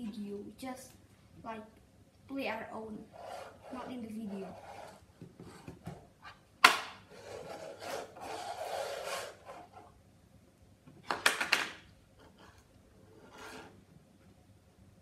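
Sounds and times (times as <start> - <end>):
plastic moulds scraping on table: 7.1 - 9.9, 12.3 - 13.8.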